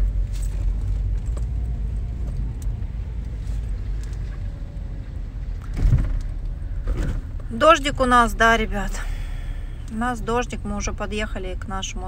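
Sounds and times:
car engine and road rumble: 0.0 - 12.0
dull thump: 5.7 - 7.3.

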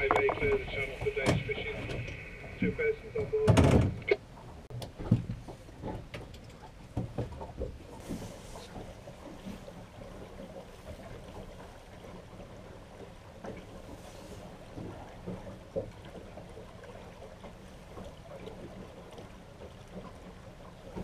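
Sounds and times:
low steady hum: 0.0 - 13.0
water noise: 0.0 - 21.0
wind: 0.0 - 21.0
knocks on boat: 3.4 - 4.2, 4.8 - 8.2.

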